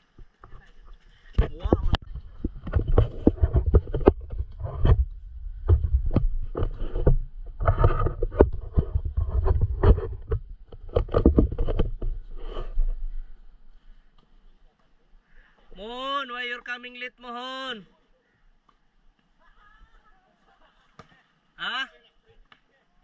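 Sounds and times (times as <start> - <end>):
knocks and flutters: 0.0 - 13.3
microphone wind buffeting: 1.4 - 13.3.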